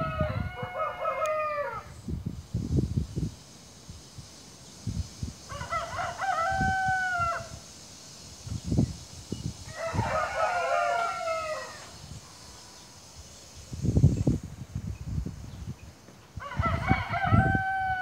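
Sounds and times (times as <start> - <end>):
rooster crowing: 0.0 - 1.9, 5.4 - 7.6, 9.6 - 12.0, 16.4 - 18.0.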